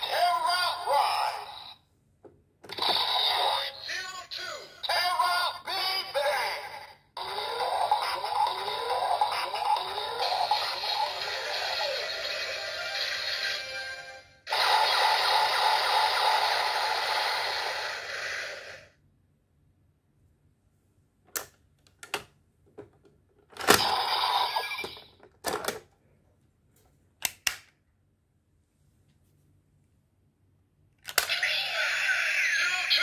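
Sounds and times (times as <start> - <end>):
toy electronic sound effect: 0.0 - 1.8, 2.7 - 18.9, 23.7 - 25.2, 31.1 - 33.0.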